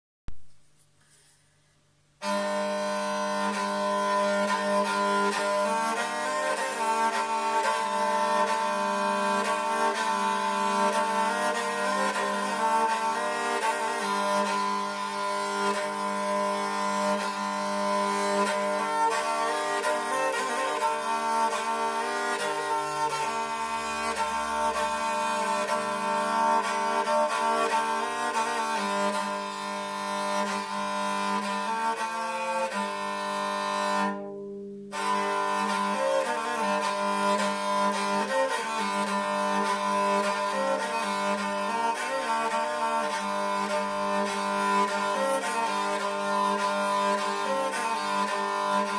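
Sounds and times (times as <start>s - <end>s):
bowed lyre melody over drone: 2.2s - 48.9s.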